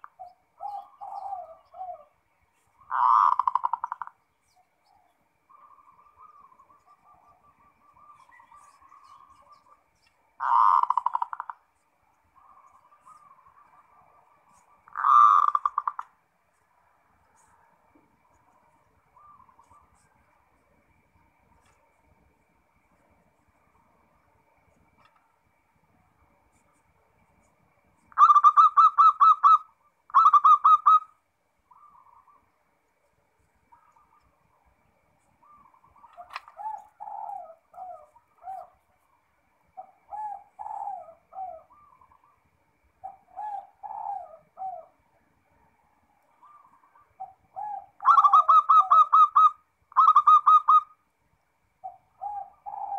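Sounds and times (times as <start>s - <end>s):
dove cooing: 0.0s - 11.7s, 12.4s - 16.2s, 17.3s - 20.3s, 28.0s - 32.5s, 35.2s - 51.0s, 51.8s - 52.9s.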